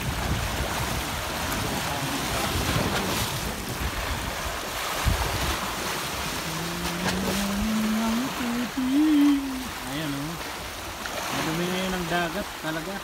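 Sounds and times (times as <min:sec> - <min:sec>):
wind buffeting microphone: 0:00.0 - 0:09.9
sea waves washing on shore: 0:00.0 - 0:13.0.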